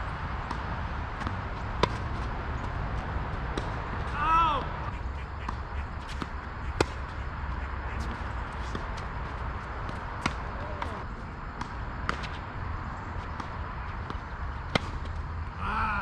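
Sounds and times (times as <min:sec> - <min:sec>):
tennis ball bouncing: 0:00.4 - 0:12.4, 0:13.2 - 0:15.2
rackets striking tennis ball: 0:03.3 - 0:12.5, 0:13.3 - 0:15.2.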